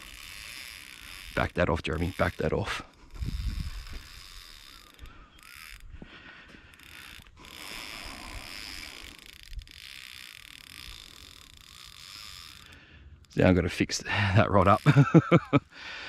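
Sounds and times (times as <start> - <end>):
fishing reel drag ticking: 0.0 - 16.0.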